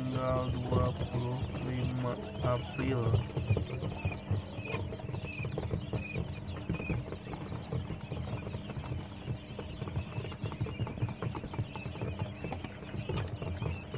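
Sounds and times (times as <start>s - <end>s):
chicks peeping: 0.0s - 13.9s.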